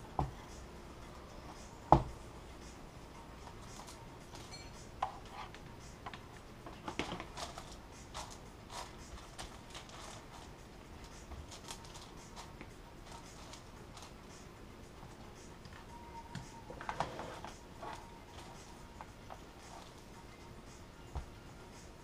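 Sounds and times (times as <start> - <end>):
plastic film rustling and crinkling: 6.8 - 14.2.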